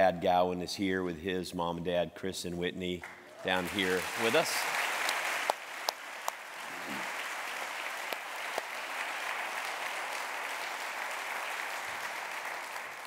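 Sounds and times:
crowd applauding: 3.0 - 13.0.

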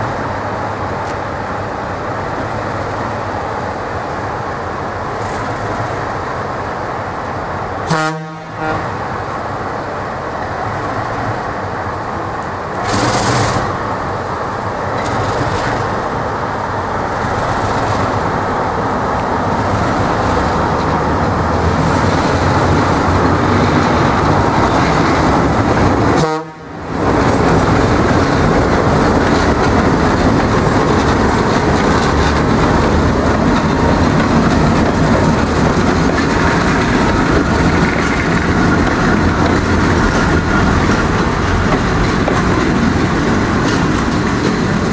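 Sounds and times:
diesel locomotives running: 0.0 - 44.9
locomotive horn toot: 7.9 - 9.0, 26.2 - 26.8.

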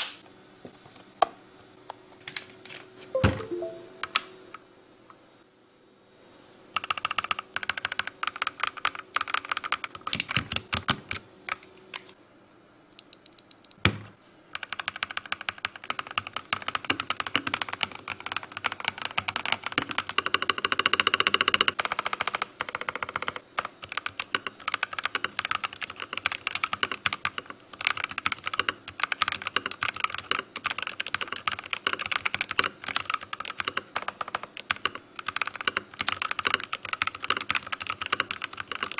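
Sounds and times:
fast typing on mechanical keyboard: 6.8 - 11.6, 14.5 - 38.9.

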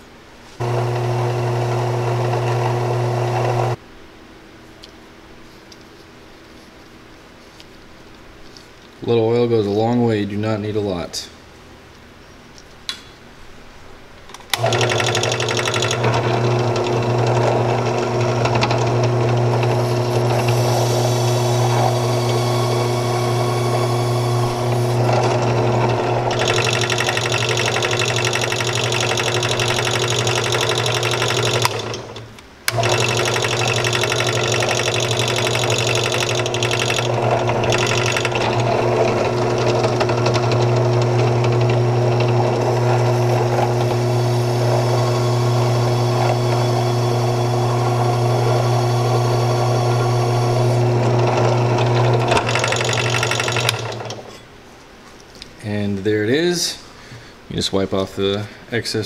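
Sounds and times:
drill press motor running: 0.6 - 3.8, 14.5 - 54.3.

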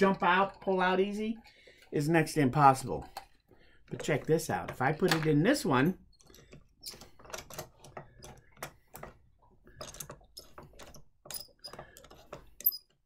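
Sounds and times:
clamp squeaks: 6.1 - 8.6, 9.7 - 13.0.

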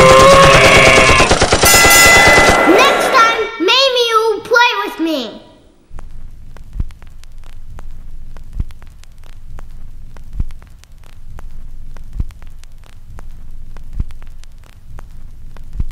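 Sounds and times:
low hum: 5.6 - 15.9
film crackle hiss: 5.8 - 15.9
sharp clicks: 5.9 - 15.9.

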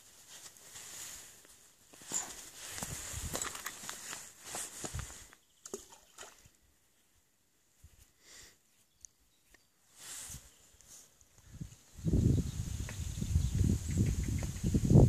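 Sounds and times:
faint clicks and rustles: 0.0 - 5.4.

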